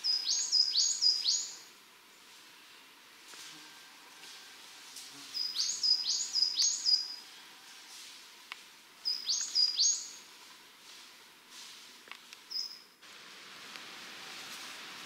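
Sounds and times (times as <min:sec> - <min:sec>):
faint woodland hiss: 0:00.0 - 0:15.0
songbird calling high notes: 0:05.4 - 0:07.2, 0:09.0 - 0:10.2.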